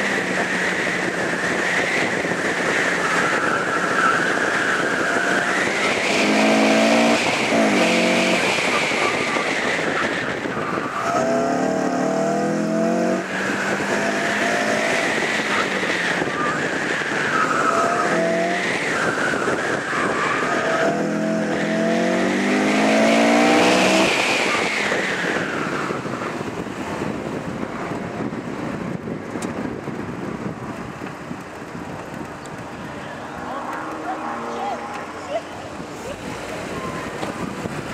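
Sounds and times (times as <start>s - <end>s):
car engine revving hard: 0.0s - 26.1s.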